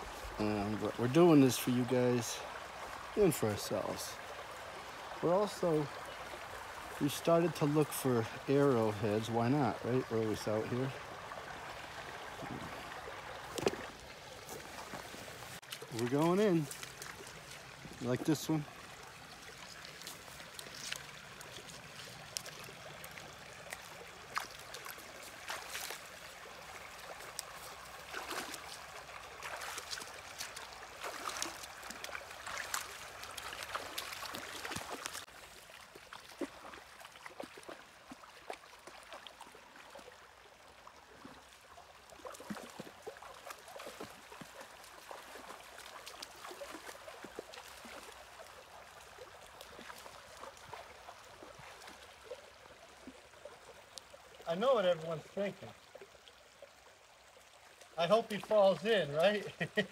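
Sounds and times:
shallow river running over stones: 0.0 - 59.9
splashing steps wading in water: 9.9 - 54.4.

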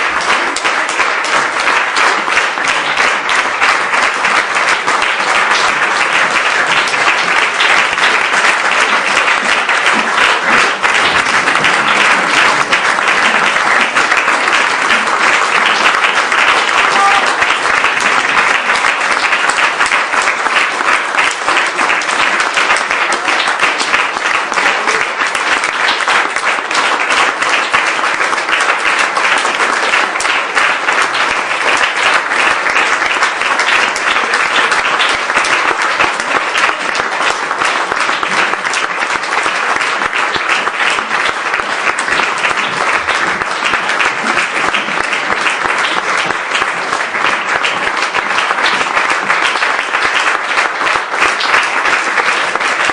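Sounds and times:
audience applauding: 0.0 - 52.9.

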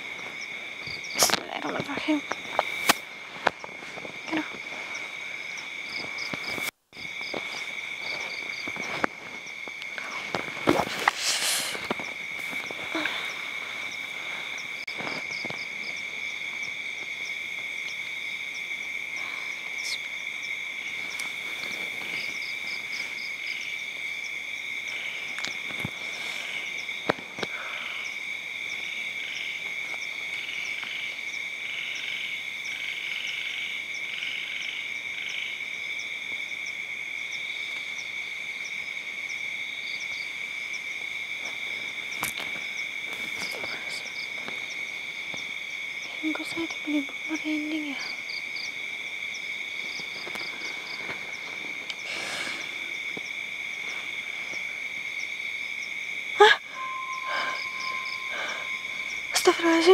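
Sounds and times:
frogs and insects trilling: 0.0 - 59.9
pulsed frog calls: 39.3 - 59.9.

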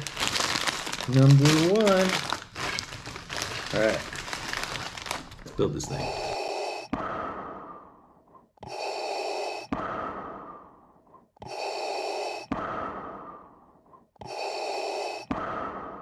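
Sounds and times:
mechanical respirator breathing: 5.8 - 16.0.

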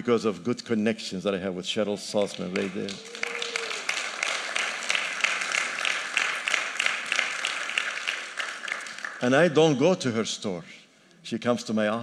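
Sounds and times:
crowd clapping: 2.2 - 9.6.

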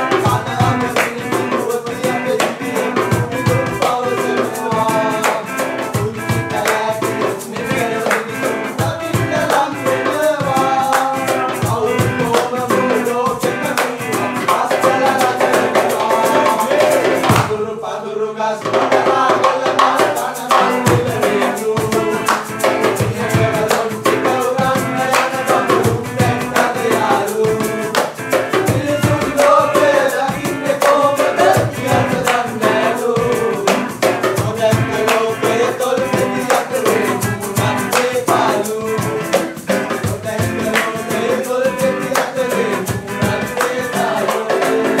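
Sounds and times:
hand drum beat: 0.0 - 17.6, 18.6 - 45.0
strummed acoustic guitar: 0.0 - 17.7, 18.6 - 45.0
group singing: 0.0 - 45.0.

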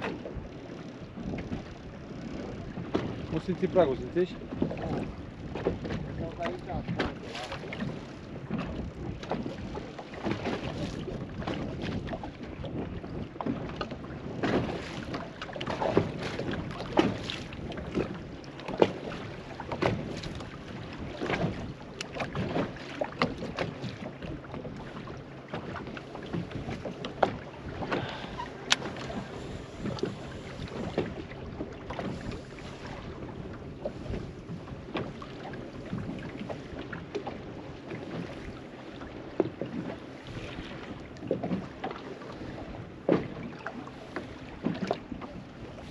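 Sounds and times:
water slapping against boat hull: 0.0 - 45.9
wind noise on microphone: 4.4 - 22.8, 27.6 - 35.2.

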